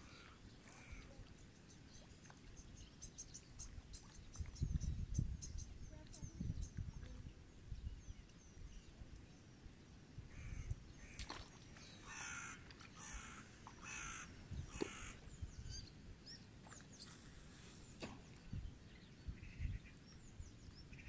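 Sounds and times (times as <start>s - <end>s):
crow cawing: 12.1s - 15.2s.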